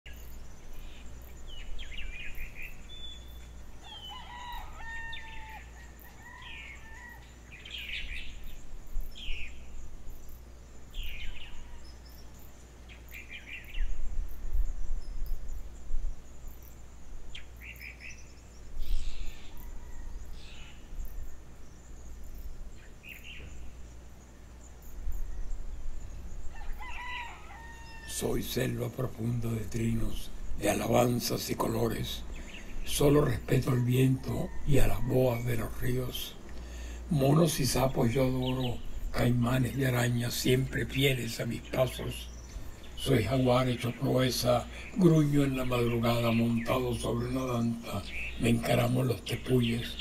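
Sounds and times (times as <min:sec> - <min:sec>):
birds chirping and calling: 0:00.1 - 0:50.0
steady low background hum: 0:00.1 - 0:50.0
rooster crowing: 0:03.7 - 0:07.7, 0:19.3 - 0:20.9, 0:26.4 - 0:28.6, 0:33.5 - 0:36.1.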